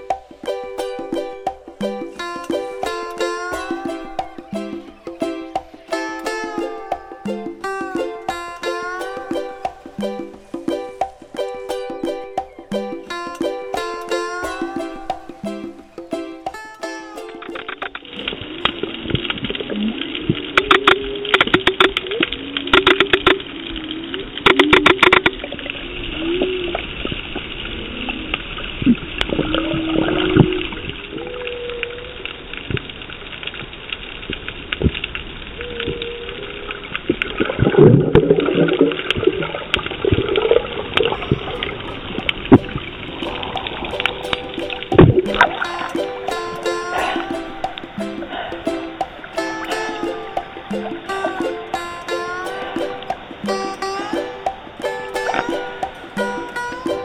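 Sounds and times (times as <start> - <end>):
wavering low tones: 0.0 - 24.4, 40.2 - 57.0
muffled underwater rushing: 0.0 - 31.1, 36.7 - 57.0.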